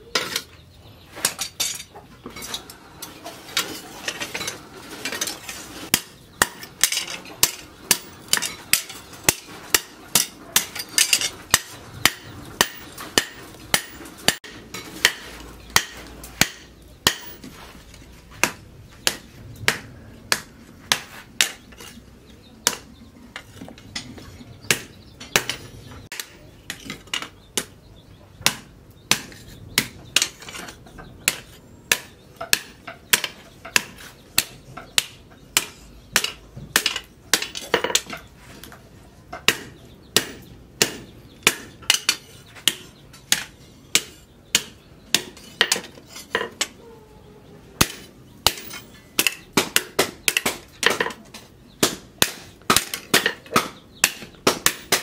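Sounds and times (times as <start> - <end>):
hammer striking hot steel: 5.9 - 17.4, 47.8 - 51.2.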